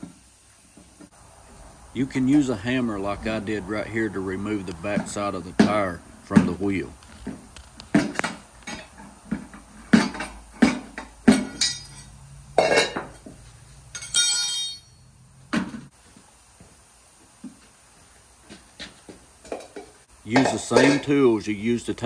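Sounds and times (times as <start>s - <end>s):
ringing metal clatter: 11.3s - 13.2s, 13.9s - 15.1s.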